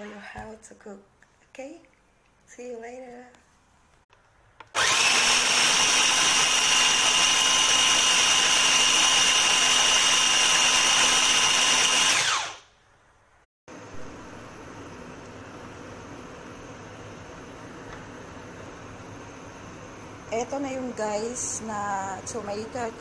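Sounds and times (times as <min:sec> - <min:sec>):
food processor motor whine: 0:04.7 - 0:12.7.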